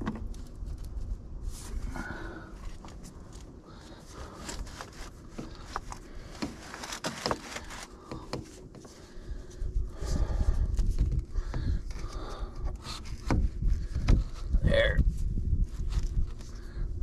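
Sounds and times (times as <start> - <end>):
rustling: 0.0 - 14.6
plastic pipe scrapes and clicks: 4.4 - 9.0, 10.6 - 14.6.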